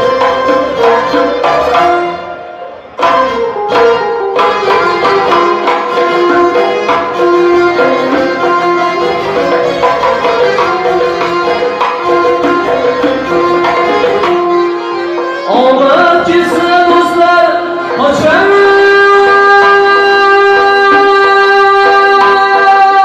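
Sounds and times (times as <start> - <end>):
accordion: 0.0 - 23.0
hand drum: 0.0 - 23.0
violin: 0.0 - 23.0
man singing long held notes: 15.5 - 23.0.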